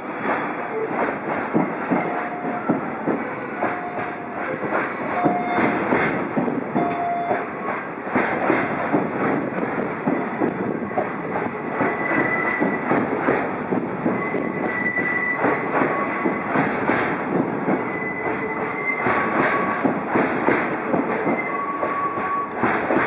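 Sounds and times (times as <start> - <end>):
train wheels clattering on rails: 0.0 - 23.0
wheel squeals: 14.2 - 16.5, 21.3 - 22.7.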